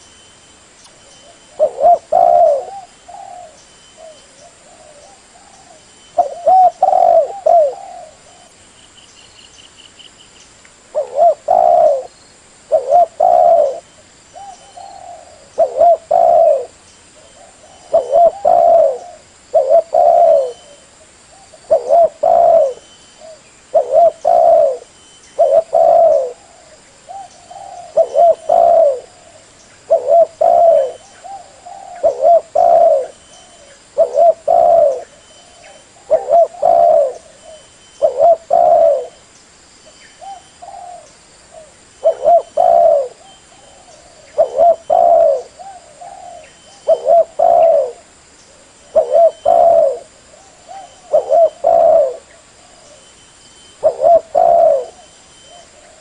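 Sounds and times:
dove cooing: 0:01.2 - 0:08.6, 0:10.9 - 0:39.2, 0:40.2 - 0:53.1, 0:53.8 - 0:56.0.

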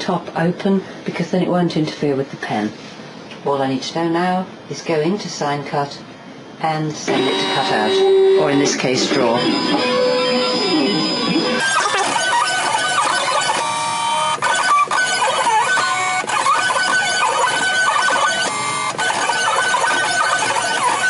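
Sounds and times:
stepper motors whining: 0:07.1 - 0:21.0.

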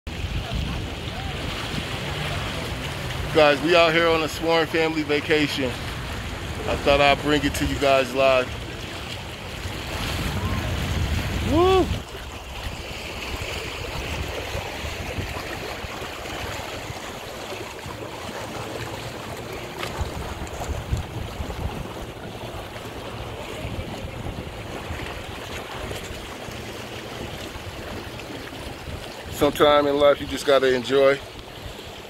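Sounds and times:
waves lapping on rocks: 0:00.1 - 0:32.0
wind buffeting microphone: 0:08.6 - 0:30.4.

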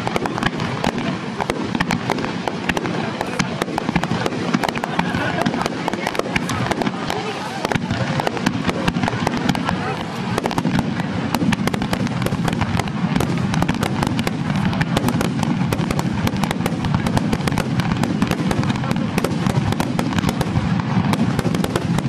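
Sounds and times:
fireworks bursting: 0:00.0 - 0:22.0.

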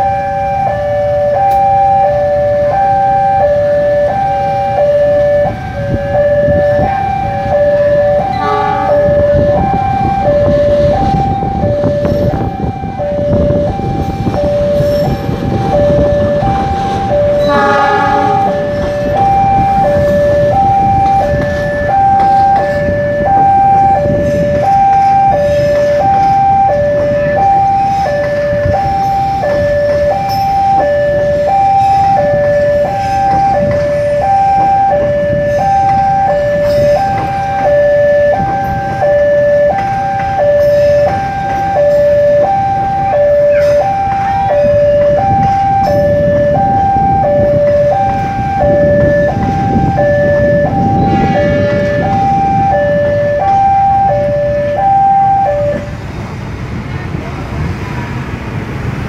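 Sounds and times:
level-crossing two-tone alarm: 0:00.0 - 0:56.0
train coaches rumbling past: 0:00.0 - 0:59.0
train horn blast: 0:08.3 - 0:09.2, 0:17.3 - 0:19.2, 0:50.9 - 0:52.7.

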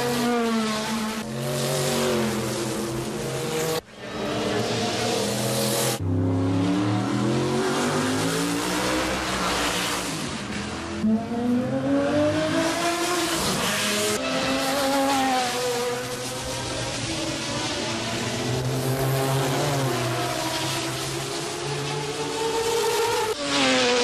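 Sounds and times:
race car engines passing by: 0:00.0 - 0:24.0.

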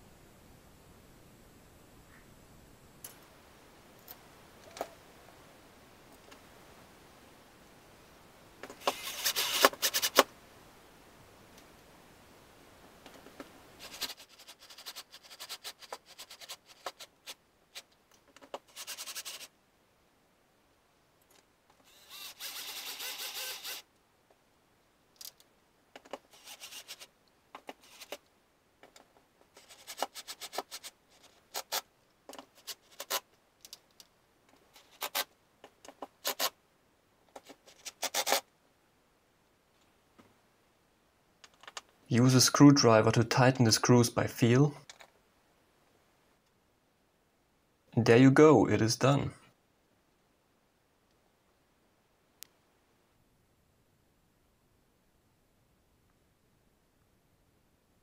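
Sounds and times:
cordless drill driving screws: 0:08.8 - 0:10.2, 0:18.7 - 0:19.5, 0:21.8 - 0:23.9, 0:26.3 - 0:27.1, 0:27.8 - 0:28.2.

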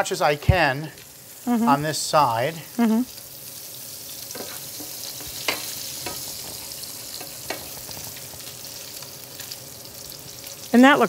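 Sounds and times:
fish sizzling in a pan: 0:00.0 - 0:11.0.

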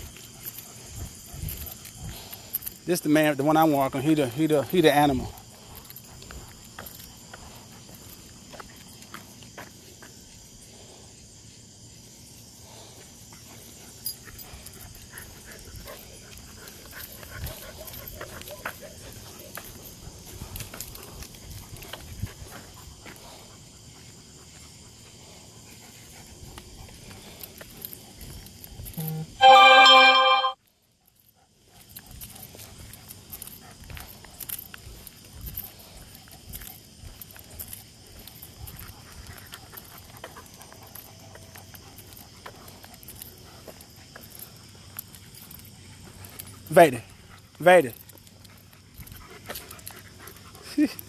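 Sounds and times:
footsteps and scuffing: 0:00.0 - 0:10.7, 0:12.9 - 0:29.3, 0:31.8 - 0:50.6
electronic tone: 0:29.0 - 0:30.6.

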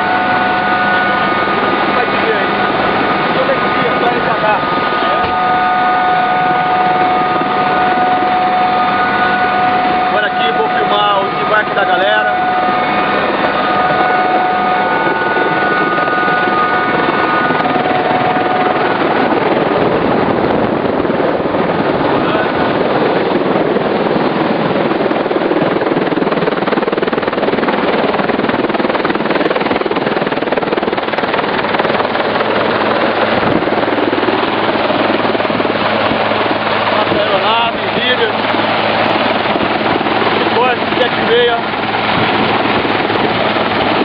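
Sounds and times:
whining tones: 0:00.0 - 0:23.3
helicopter cabin noise: 0:00.0 - 0:44.0.

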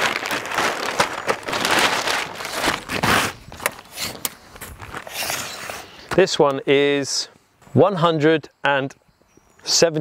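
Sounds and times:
plastic tarpaulin crinkling: 0:00.0 - 0:05.8.

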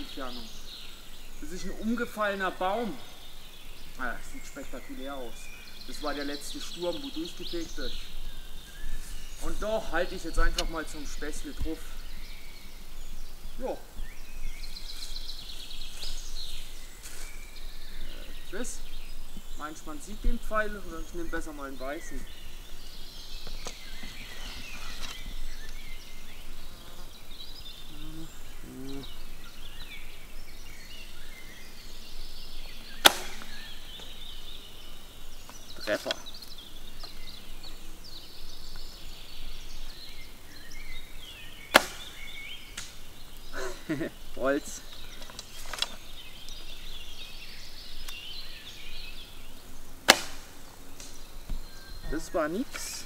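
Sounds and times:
birds chirping: 0:00.0 - 0:53.0
bowstring crack: 0:32.8 - 0:34.1, 0:41.7 - 0:43.1, 0:50.0 - 0:51.6.

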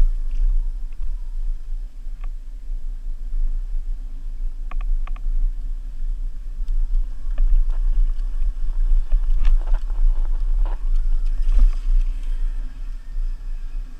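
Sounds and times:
electric dirt bike rumble: 0:00.0 - 0:13.9
wind buffeting microphone: 0:00.0 - 0:13.9
bike clicks and rattles: 0:04.6 - 0:13.9.

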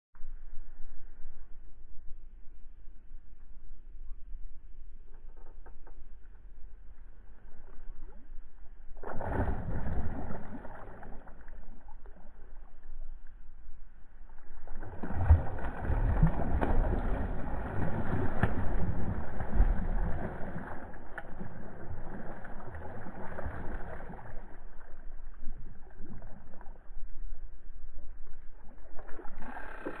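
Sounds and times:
fish splashing in water: 0:09.0 - 0:12.6, 0:14.6 - 0:26.7.

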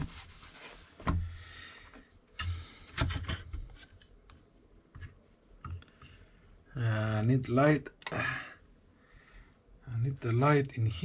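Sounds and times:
cloth rubbing on lamp housing: 0:00.0 - 0:01.2.

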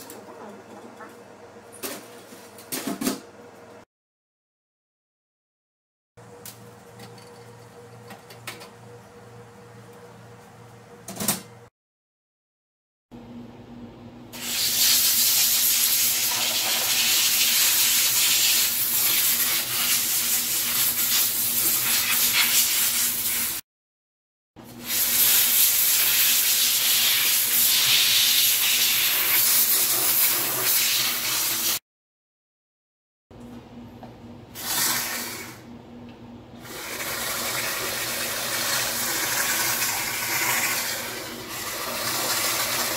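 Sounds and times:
steam cleaner hissing: 0:14.4 - 0:23.6, 0:24.8 - 0:31.8.

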